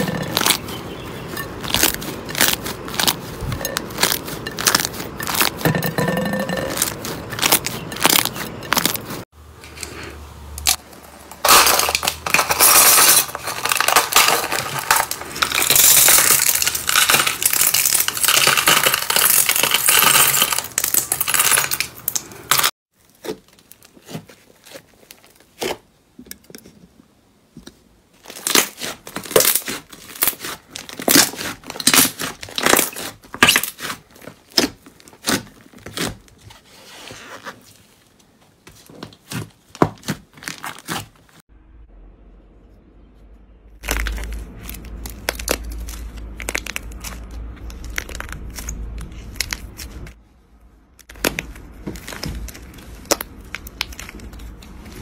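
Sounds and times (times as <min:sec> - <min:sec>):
slime crust crackling: 0:00.0 - 0:05.6, 0:06.5 - 0:09.2, 0:11.4 - 0:25.8, 0:28.2 - 0:36.4, 0:43.8 - 0:50.2, 0:51.0 - 0:55.0.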